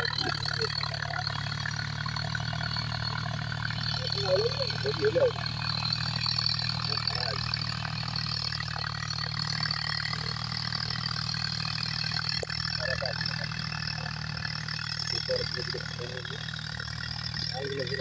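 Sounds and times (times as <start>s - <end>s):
distant tractor engine: 0.0s - 18.0s.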